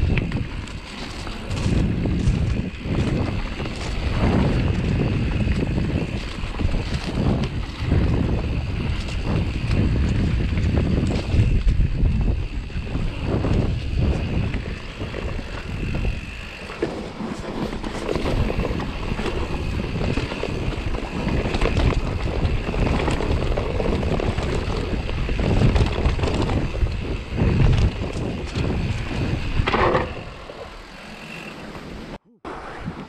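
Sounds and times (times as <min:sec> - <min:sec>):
bike rumbling over dirt trail: 0:00.0 - 0:33.0
wind buffeting microphone: 0:00.0 - 0:33.0.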